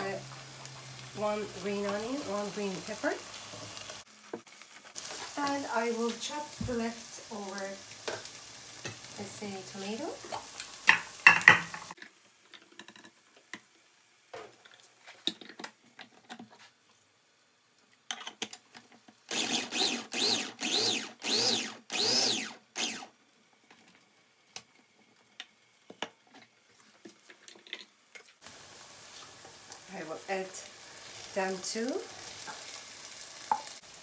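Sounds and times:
food processor motor whine: 0:19.3 - 0:23.1.

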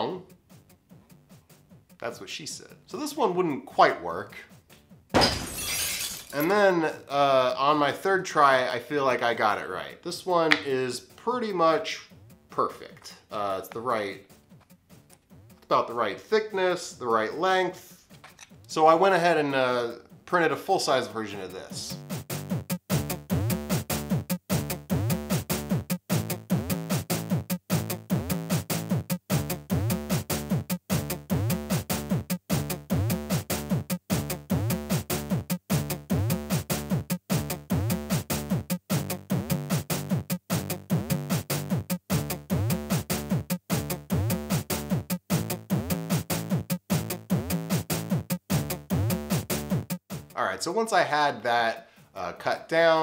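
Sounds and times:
electronic drum machine beat with synth: 0:21.8 - 0:50.3.

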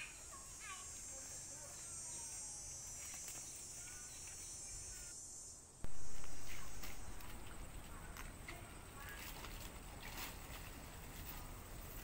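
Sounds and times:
faint chirps: 0:00.0 - 0:09.1
insects buzzing: 0:00.0 - 0:12.0
sudden loud noise: 0:05.8 - 0:08.0.

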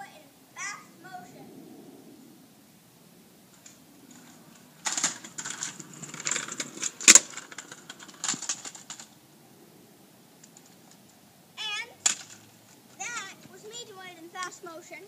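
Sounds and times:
scooter wheels rattling over bricks: 0:03.6 - 0:09.2, 0:10.5 - 0:15.0.

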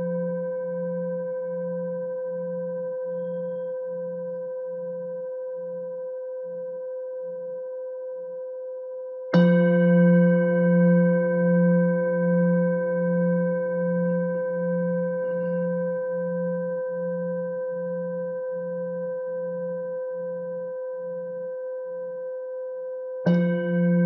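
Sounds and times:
singing bowl ringing: 0:23.3 - 0:24.0.

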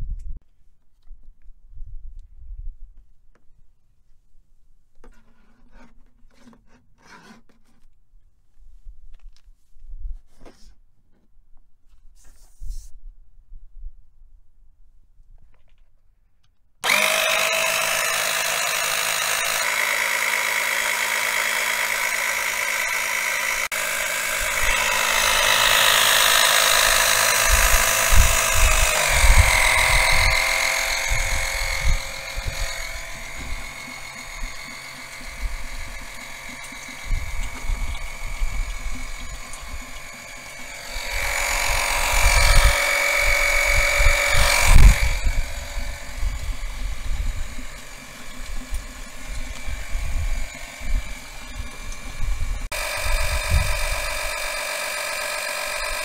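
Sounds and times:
electric pump motor whine: 0:16.8 - 0:56.0.

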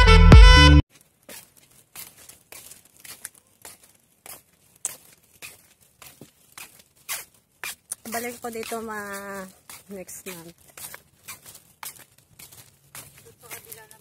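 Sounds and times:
background music: 0:00.0 - 0:00.8.

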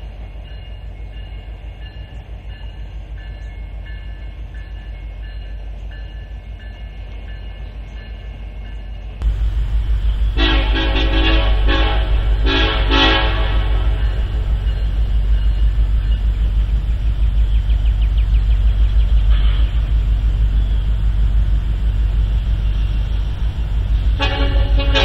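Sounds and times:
freight train rumbling past: 0:00.0 - 0:25.0
locomotive air horn blast: 0:10.1 - 0:14.4, 0:24.1 - 0:25.0.

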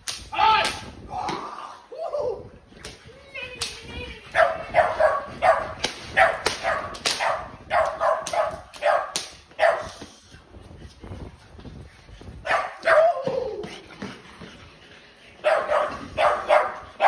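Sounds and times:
dog barking: 0:04.4 - 0:09.9, 0:12.5 - 0:13.0, 0:15.4 - 0:17.0.

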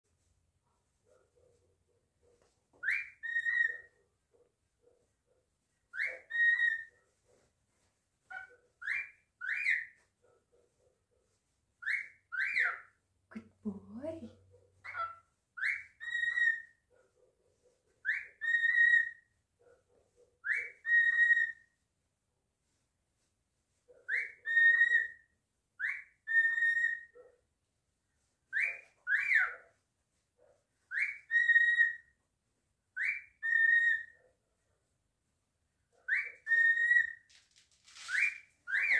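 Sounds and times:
cockatiel whistling: 0:02.8 - 0:03.9, 0:05.9 - 0:06.9, 0:08.3 - 0:09.9, 0:14.9 - 0:16.7, 0:18.0 - 0:19.2, 0:20.4 - 0:21.6, 0:24.1 - 0:25.2, 0:25.8 - 0:27.1, 0:30.9 - 0:32.0, 0:33.0 - 0:34.2, 0:36.1 - 0:37.2.

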